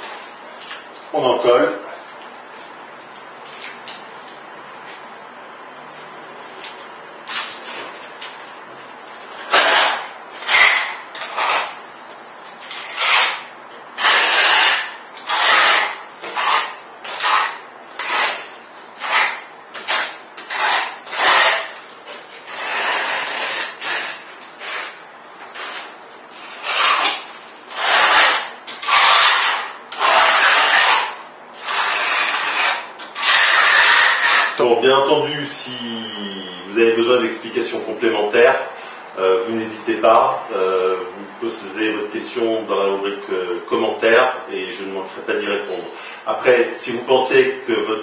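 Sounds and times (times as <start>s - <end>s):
trowel scraping adhesive on floor: 9.2s - 11.8s, 12.6s - 34.6s.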